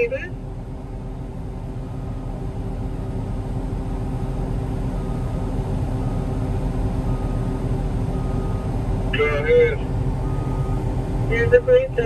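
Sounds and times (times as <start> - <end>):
heavy diesel engines rumbling: 0.0 - 12.0
faint beeping alarm: 1.9 - 2.4, 4.2 - 9.6, 10.2 - 12.0.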